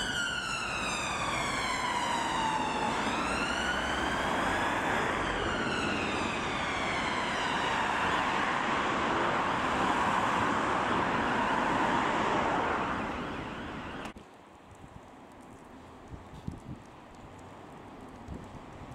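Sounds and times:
emergency vehicle siren wailing: 0:00.0 - 0:14.2
vehicles moving on road: 0:00.0 - 0:18.9.

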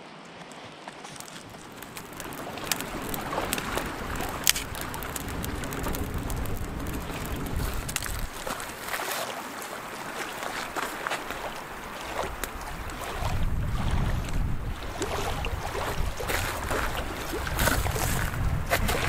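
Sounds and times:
lapping lake water: 0:00.0 - 0:19.0
dry sticks snapping: 0:01.0 - 0:09.2
wind buffeting microphone: 0:01.4 - 0:09.1, 0:09.8 - 0:19.0.

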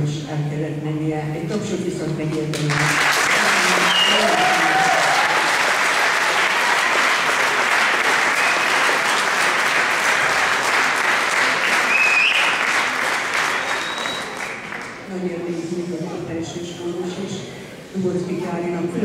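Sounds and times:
audience applauding: 0:02.6 - 0:15.1.

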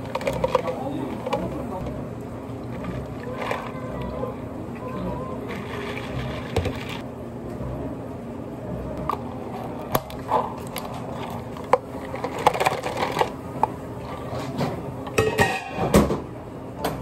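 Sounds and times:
cups and metal pitchers clicking: 0:00.0 - 0:01.9.

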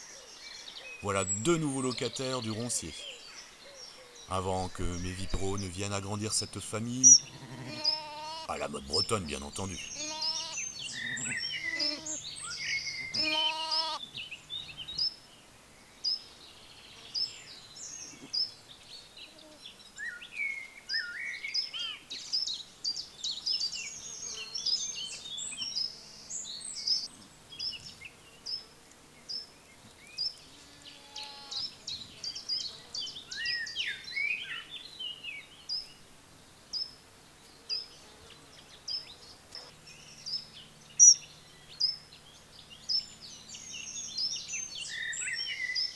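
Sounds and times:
songbirds chirping: 0:00.0 - 0:45.9
lamb bleating: 0:07.1 - 0:08.5, 0:09.9 - 0:12.2, 0:13.0 - 0:14.0, 0:30.9 - 0:31.6.

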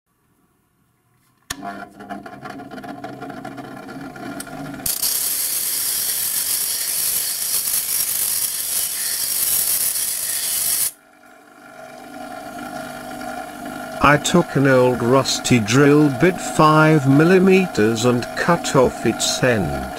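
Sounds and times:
bench grinder motor hum: 0:01.5 - 0:19.9
metal grinding hiss: 0:04.9 - 0:11.0.

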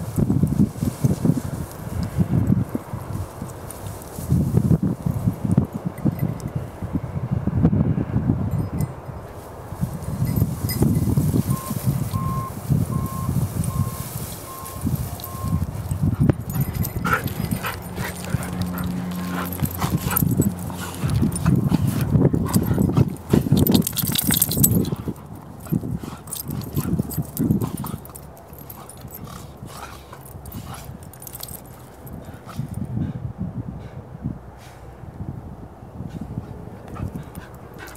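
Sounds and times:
rustling through grass: 0:00.0 - 0:05.6, 0:09.3 - 0:32.7
dogs playing sounds: 0:00.0 - 0:06.6, 0:09.3 - 0:33.2, 0:36.0 - 0:37.9.

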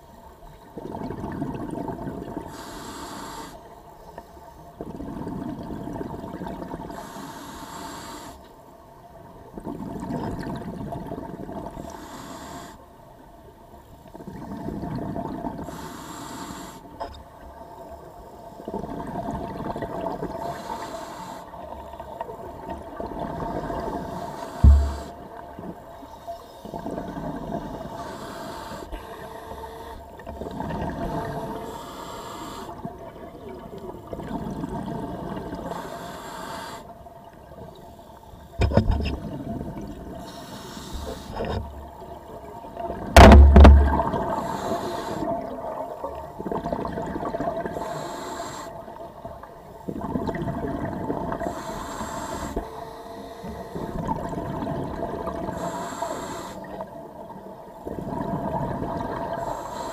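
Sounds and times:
gurgling exhaled bubbles: 0:00.8 - 0:02.5, 0:04.8 - 0:06.9, 0:14.2 - 0:15.6, 0:32.8 - 0:35.7, 0:42.4 - 0:47.8, 0:49.9 - 0:51.5, 0:53.8 - 0:55.6, 0:57.8 - 0:59.5
regulator breathing hiss: 0:02.5 - 0:03.7, 0:06.9 - 0:08.5, 0:11.8 - 0:12.9, 0:15.6 - 0:17.0, 0:20.4 - 0:21.6, 0:24.0 - 0:25.2, 0:27.9 - 0:30.1, 0:31.2 - 0:32.8, 0:35.6 - 0:36.9, 0:40.2 - 0:41.6, 0:44.3 - 0:45.4, 0:47.7 - 0:49.0, 0:51.4 - 0:53.9, 0:55.5 - 0:56.8, 0:59.4 - 0:59.9.

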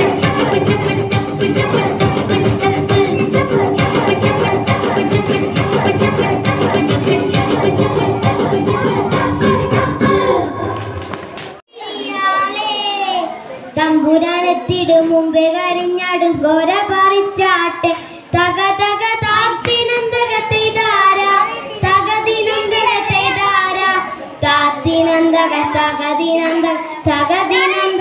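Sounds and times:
boy singing into microphone: 0:13.8 - 0:28.0
singer breathing: 0:17.9 - 0:18.3.

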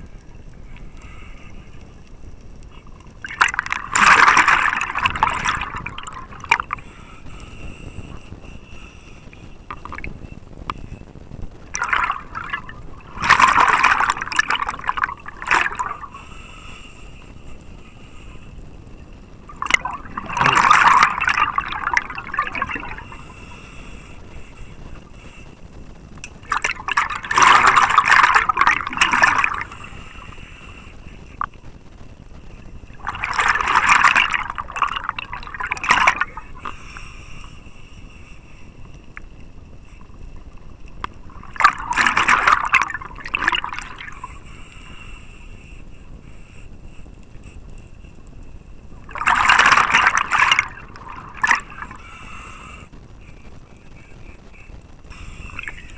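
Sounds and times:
faint underwater rush: 0:00.0 - 0:11.0, 0:11.6 - 0:18.5, 0:19.4 - 0:25.8, 0:26.4 - 0:31.6, 0:32.4 - 0:39.1, 0:40.9 - 0:46.7, 0:49.0 - 0:55.9
exhaled breath bubbling underwater: 0:02.7 - 0:11.0, 0:11.6 - 0:18.6, 0:19.4 - 0:25.7, 0:26.4 - 0:31.6, 0:32.9 - 0:37.4, 0:41.2 - 0:45.0, 0:49.0 - 0:55.9.

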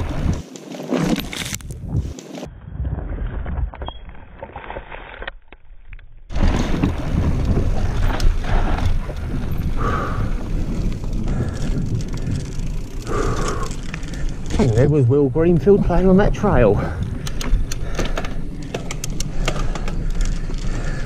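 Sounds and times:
tyres and frame rumbling: 0:00.0 - 0:04.5, 0:06.3 - 0:21.0
bike clicks and crunches: 0:00.0 - 0:21.0.

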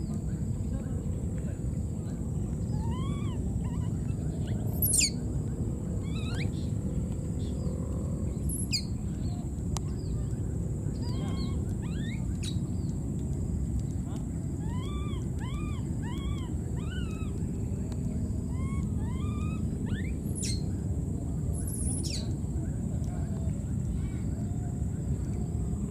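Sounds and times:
steady low rumble: 0:00.0 - 0:25.9
baby monkeys squeaking: 0:02.7 - 0:05.2, 0:06.0 - 0:06.6, 0:11.0 - 0:12.6, 0:14.6 - 0:17.4, 0:18.5 - 0:20.7
shrill monkey cries: 0:02.7 - 0:05.2, 0:06.0 - 0:06.4, 0:11.0 - 0:12.2, 0:14.6 - 0:17.3, 0:18.5 - 0:20.6.

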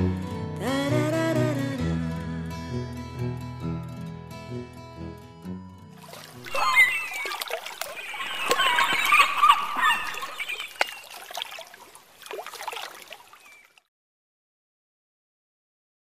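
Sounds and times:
water splashing and bubbling: 0:06.0 - 0:13.9.

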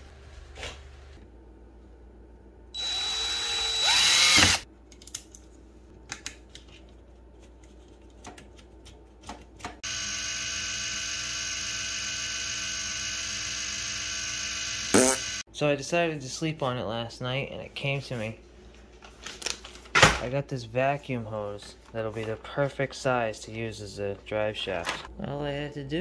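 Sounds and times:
power drill running: 0:02.8 - 0:04.6, 0:09.8 - 0:15.4
small motor whining: 0:02.8 - 0:04.6, 0:09.8 - 0:15.4.

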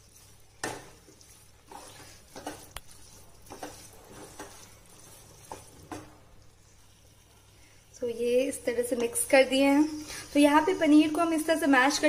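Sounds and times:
spatula scraping and knocking pan: 0:00.0 - 0:06.2.

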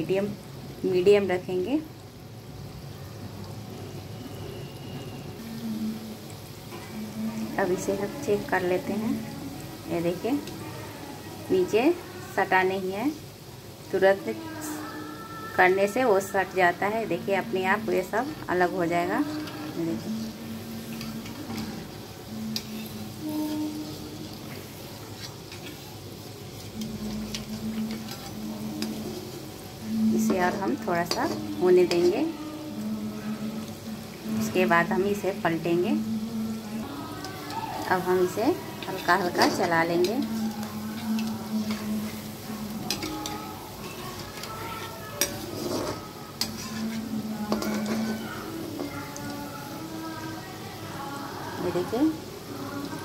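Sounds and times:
dough balls deep-frying in oil: 0:00.0 - 0:53.0
oil popping and crackling: 0:20.9 - 0:32.3, 0:36.7 - 0:49.5
metal spoon clinking against pan: 0:42.8 - 0:48.9.

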